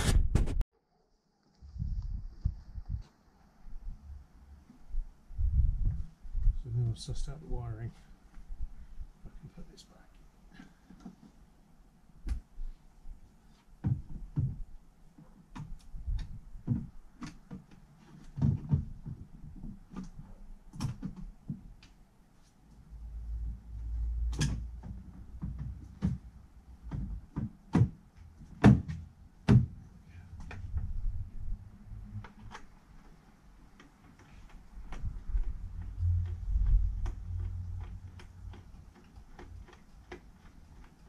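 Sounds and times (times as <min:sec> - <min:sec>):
low rumble: 0:35.1 - 0:38.2.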